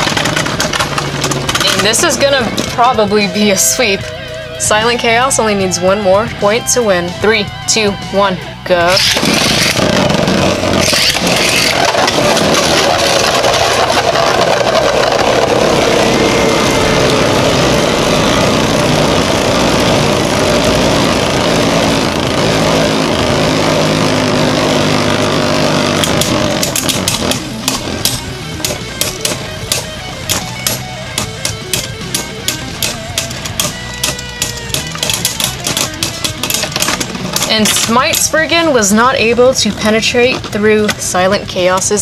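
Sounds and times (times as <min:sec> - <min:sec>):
tops clashing clicks: 0:00.0 - 0:02.9, 0:24.8 - 0:38.6
spinning tops whirring and grinding: 0:00.0 - 0:06.8, 0:08.9 - 0:42.0.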